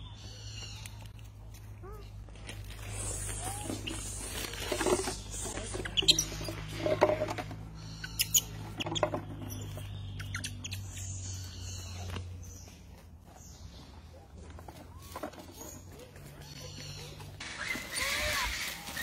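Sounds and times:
infant monkey squeaking: 3.2s - 6.9s, 7.7s - 12.0s.

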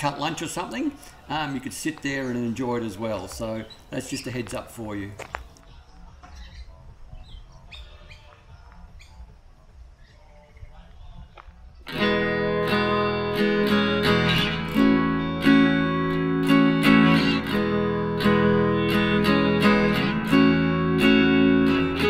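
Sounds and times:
acoustic guitar strumming: 11.9s - 22.0s.

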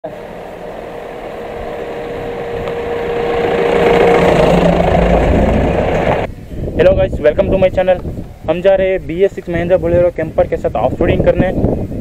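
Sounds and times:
diesel truck engine passing: 0.0s - 6.3s.

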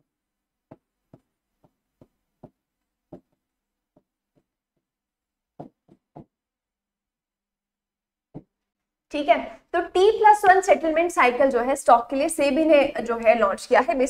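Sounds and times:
marker tapping on whiteboard: 0.7s - 4.9s, 5.6s - 6.4s.

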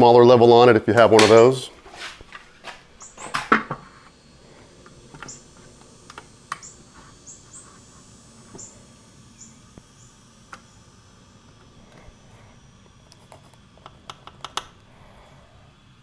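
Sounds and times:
faint high chirps: 5.2s - 5.5s, 8.5s - 10.2s.

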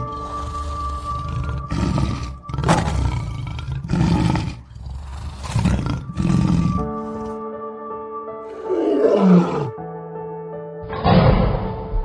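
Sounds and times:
lion growling: 0.0s - 7.3s, 8.5s - 9.8s.

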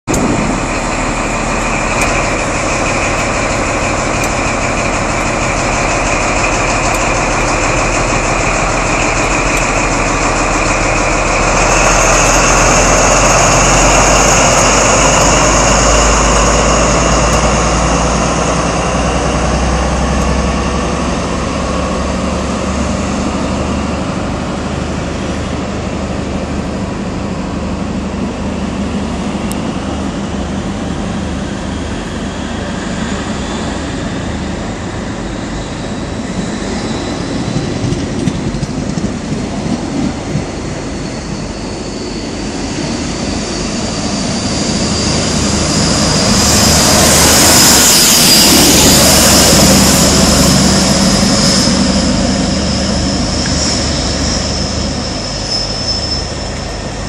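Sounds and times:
train diesel engine working hard: 0.0s - 57.0s
train coaches passing: 0.1s - 57.0s
high whistle: 40.9s - 57.0s.

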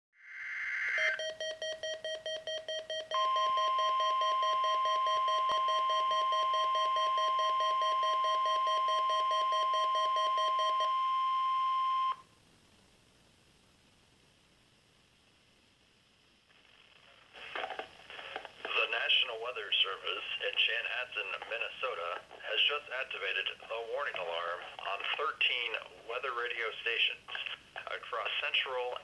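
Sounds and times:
steady alarm tone: 0.7s - 12.2s.

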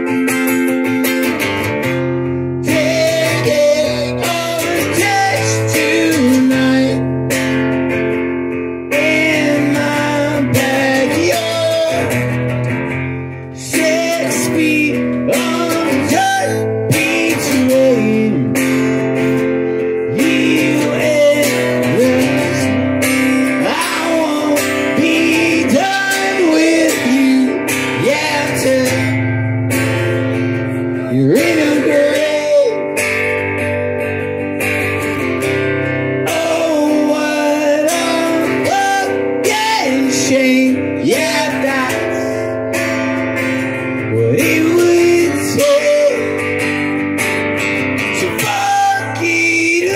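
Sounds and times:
acoustic guitar strumming: 0.0s - 49.9s
man singing: 2.6s - 7.4s, 8.8s - 12.6s, 13.3s - 29.3s, 30.6s - 33.4s, 36.2s - 43.0s, 44.0s - 46.9s, 48.0s - 49.9s.

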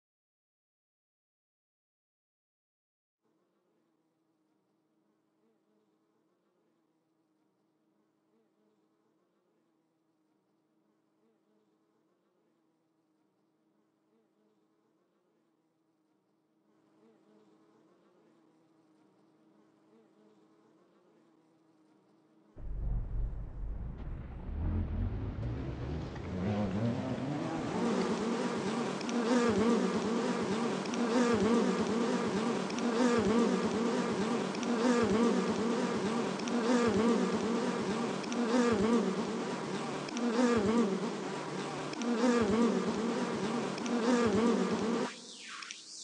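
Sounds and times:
low rumble: 22.6s - 27.1s.

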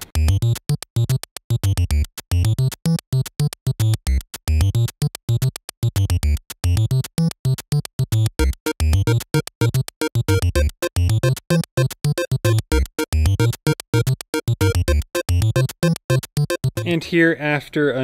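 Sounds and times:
choppy synthesizer pattern: 8.0s - 17.1s.

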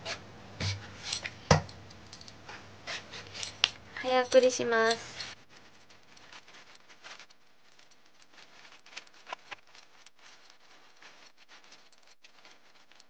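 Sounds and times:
knife peeling sweet potato: 2.5s - 7.1s.

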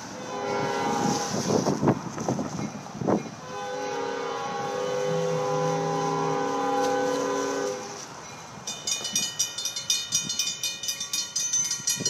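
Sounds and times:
locomotive air horn: 0.1s - 1.7s, 3.4s - 8.1s.

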